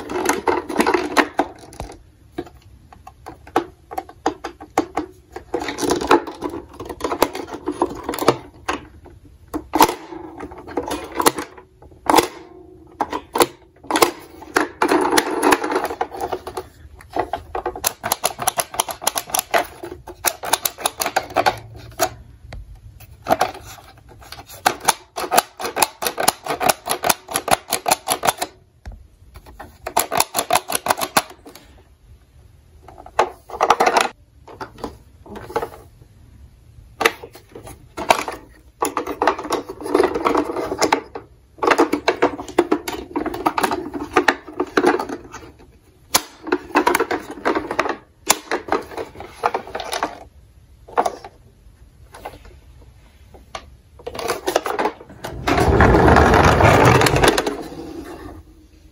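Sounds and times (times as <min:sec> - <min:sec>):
fingers clicking on plastic toy: 0:17.8 - 0:21.7, 0:24.7 - 0:28.5.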